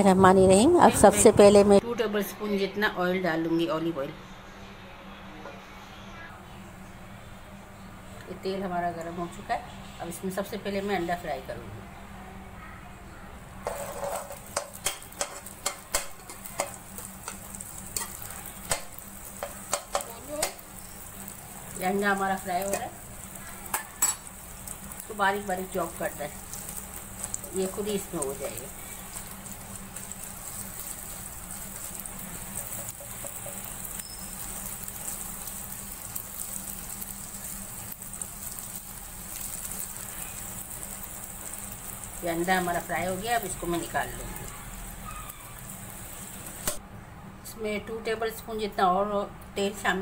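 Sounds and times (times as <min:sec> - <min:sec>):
metal spatula scraping pan: 0:13.6 - 0:18.3
egg sizzling in hot oil: 0:13.6 - 0:46.8.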